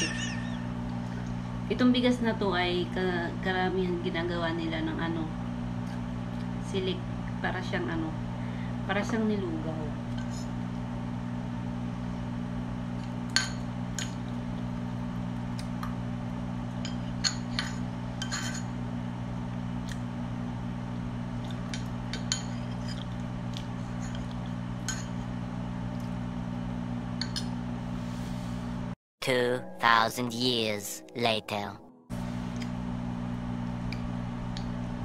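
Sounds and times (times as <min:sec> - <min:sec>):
steady low hum: 0:00.0 - 0:29.0, 0:32.1 - 0:35.0
metal spoon scraping a plate: 0:16.9 - 0:18.7.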